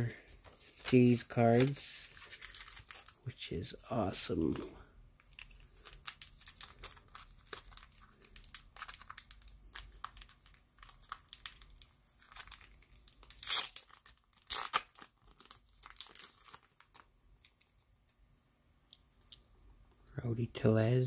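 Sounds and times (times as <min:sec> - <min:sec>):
plastic bag crinkling: 0:00.4 - 0:03.3, 0:04.4 - 0:17.8
plastic ripping: 0:04.5 - 0:17.7.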